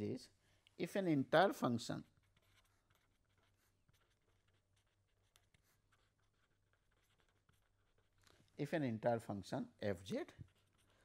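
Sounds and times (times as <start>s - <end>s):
pen scratching on paper: 1.9s - 8.2s, 10.1s - 11.0s.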